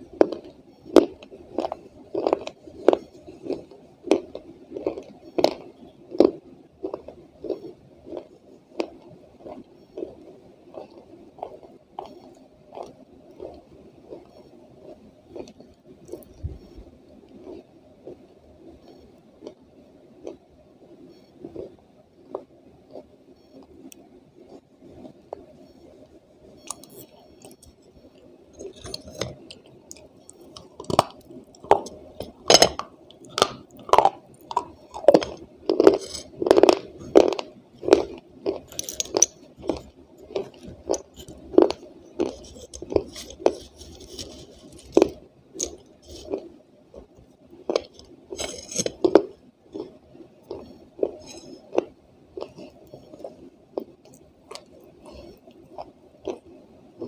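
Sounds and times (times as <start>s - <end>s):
clay being crunched and chewed: 26.6s - 56.5s.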